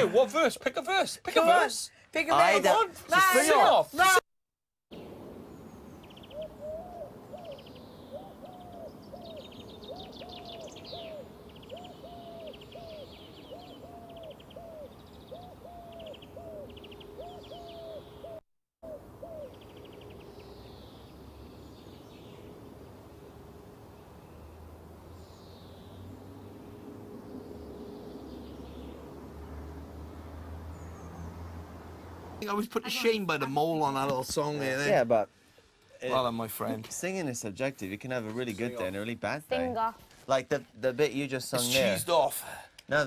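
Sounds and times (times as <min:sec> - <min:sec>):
birds chirping and trilling: 0:04.9 - 0:35.1
low hooting bird calls: 0:05.5 - 0:31.6.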